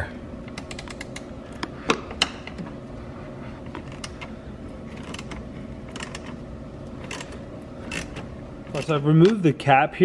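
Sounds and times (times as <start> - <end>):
ratchet wrench clicking: 5.0 - 6.4, 7.0 - 8.2.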